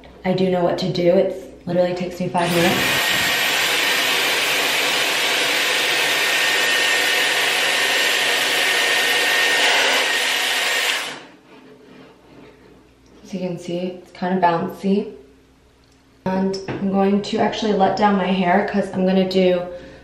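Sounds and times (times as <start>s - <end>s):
hair styler blowing air: 2.4s - 11.3s
motor whine: 2.4s - 11.3s.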